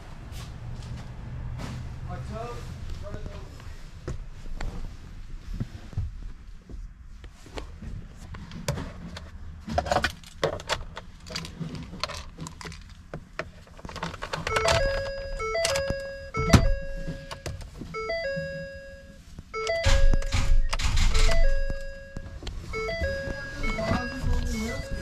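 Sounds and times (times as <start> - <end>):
electronic tone melody: 14.5 - 20.6, 21.2 - 25.0.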